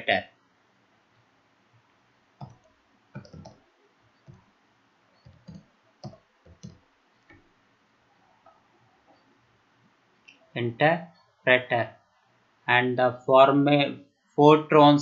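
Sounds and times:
keyboard keys clicking: 2.4s - 3.6s, 5.2s - 6.8s.

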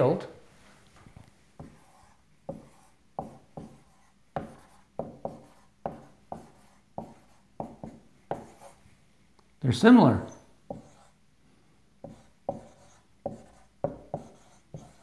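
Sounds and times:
marker writing on whiteboard: 1.6s - 8.8s, 10.2s - 11.2s, 12.0s - 15.0s.

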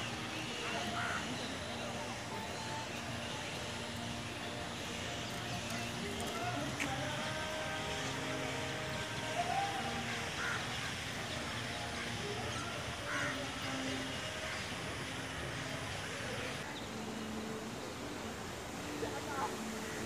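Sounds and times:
outdoor background noise: 0.0s - 20.0s
crow cawing: 0.9s - 1.3s, 10.2s - 10.9s, 13.0s - 13.5s.

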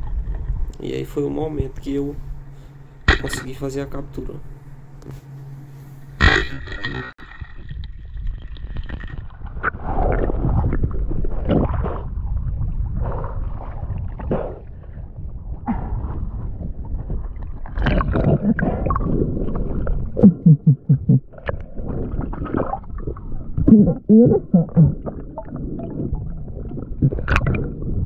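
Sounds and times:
water gurgling and sloshing: 0.0s - 3.6s, 4.4s - 28.0s
low bubbly pulses: 7.4s - 28.0s.

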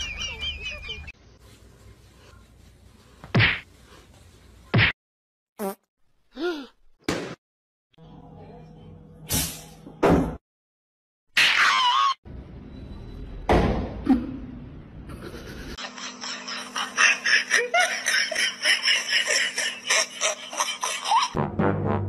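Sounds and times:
people laughing: 0.0s - 1.1s, 15.1s - 21.4s.

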